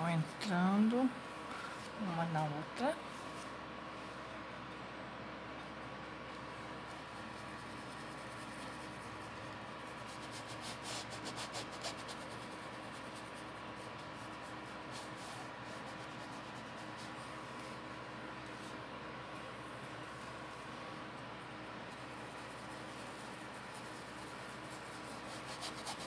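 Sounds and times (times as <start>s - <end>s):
faint steady hum: 0.0s - 26.0s
paintbrush brushing on fabric: 6.8s - 18.8s, 21.8s - 26.0s.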